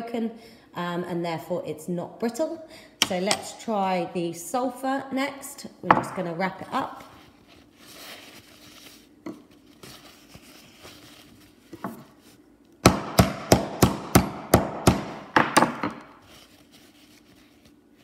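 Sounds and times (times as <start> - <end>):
paper towel rustling: 6.9 - 12.5, 16.2 - 18.0.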